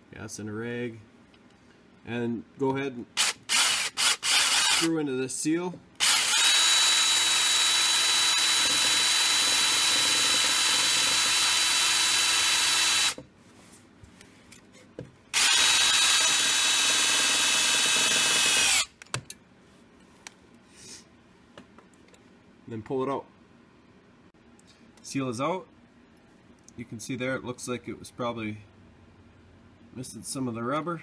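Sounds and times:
power drill running: 3.2 - 4.9, 6.0 - 13.2, 15.3 - 18.9.

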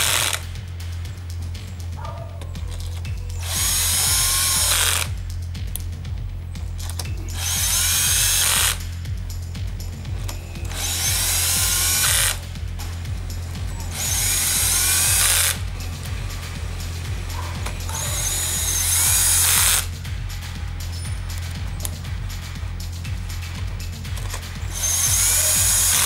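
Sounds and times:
electric drill spinning: 0.0 - 0.4, 3.4 - 5.1, 7.3 - 8.8, 10.6 - 12.5, 13.9 - 15.6, 17.6 - 19.9, 24.7 - 26.0
background music with low beat: 0.0 - 26.0.

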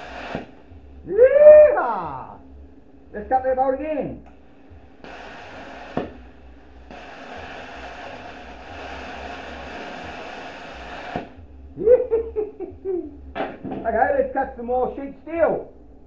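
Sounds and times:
plasma cutter arc hissing: 0.0 - 0.5, 4.9 - 6.2, 6.8 - 11.4.

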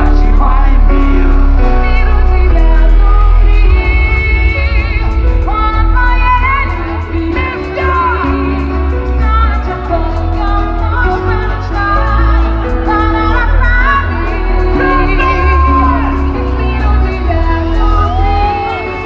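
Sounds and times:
person singing lead vocals: 0.0 - 19.0
pop dance band playing live: 0.0 - 19.0.

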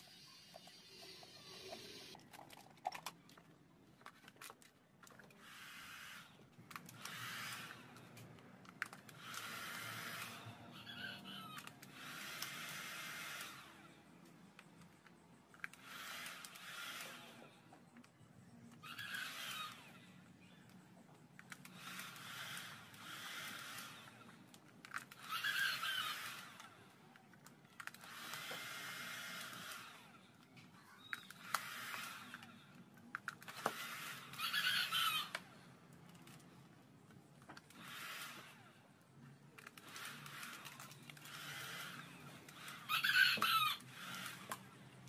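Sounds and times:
rooster crowing: 42.9 - 43.8.

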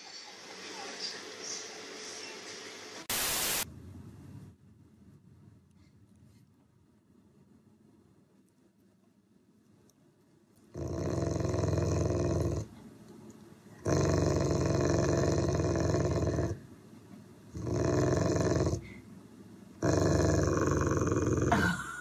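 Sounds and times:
dog rumbling: 10.7 - 12.8, 13.8 - 16.7, 17.5 - 19.0, 19.8 - 21.8.

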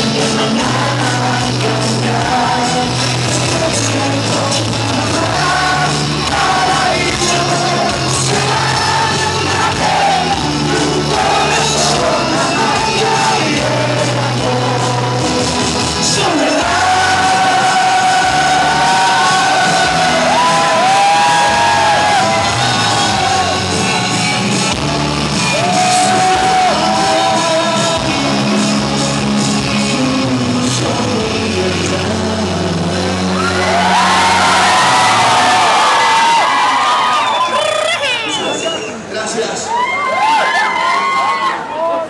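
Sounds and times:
man singing into a microphone: 0.0 - 24.8, 25.5 - 33.9
recorded backing track: 0.0 - 39.6.

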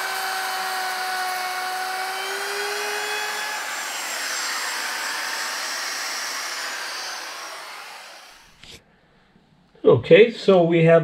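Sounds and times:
electric router cutting wood: 0.0 - 8.6.

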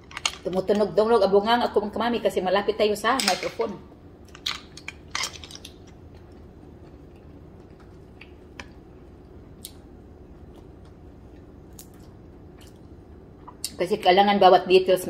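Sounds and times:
low room hum: 0.0 - 15.0
mouth noises and chewing: 5.6 - 8.8.

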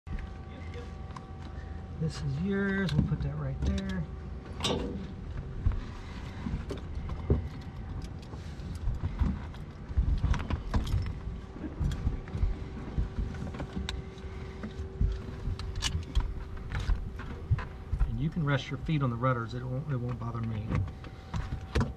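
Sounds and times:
clicks and knocks in aircraft cabin: 20.0 - 21.9.

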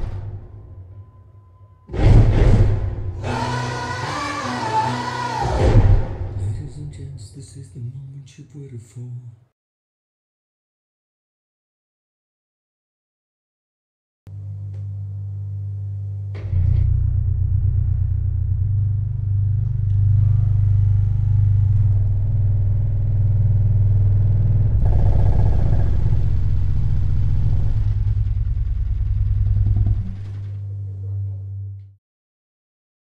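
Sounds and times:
higher sound effects: 1.9 - 6.9
deep subwoofer bass rumble: 14.4 - 31.9.

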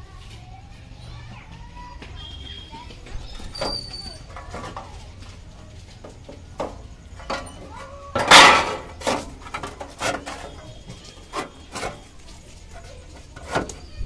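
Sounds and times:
sheet-metal tray clattering: 6.6 - 12.1.

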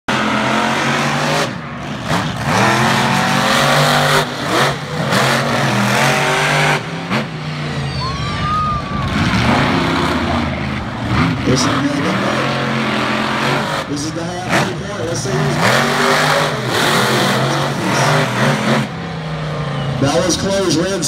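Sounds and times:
monster truck engines revving: 0.1 - 21.0
high squeal: 7.6 - 9.6.

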